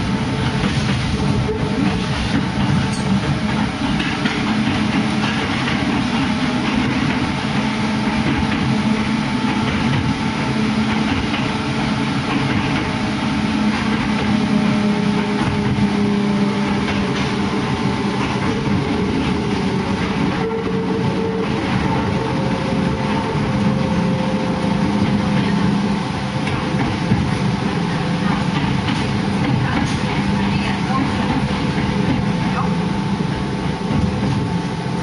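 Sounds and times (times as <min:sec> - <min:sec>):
wheels rumbling on rail: 0:00.0 - 0:35.0.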